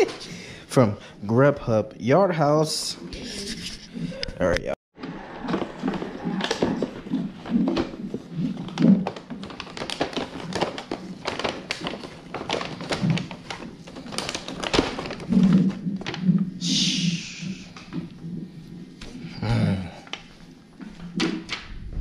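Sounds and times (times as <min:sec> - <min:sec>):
plastic containers clicking: 0:05.0 - 0:16.2.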